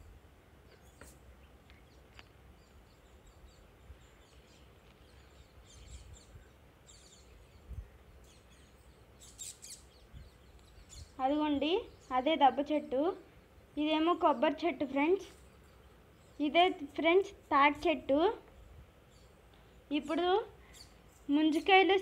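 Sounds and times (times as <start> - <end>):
bird chirps: 0.6 - 12.9, 18.5 - 22.0.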